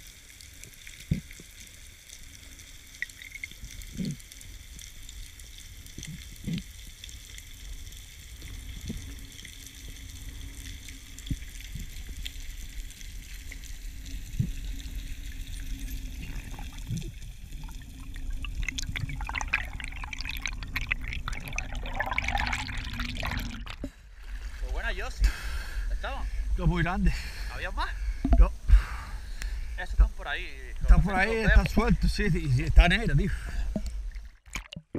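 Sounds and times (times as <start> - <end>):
crackling rush of water: 0.0 - 34.9
underwater low rumble: 0.1 - 24.6.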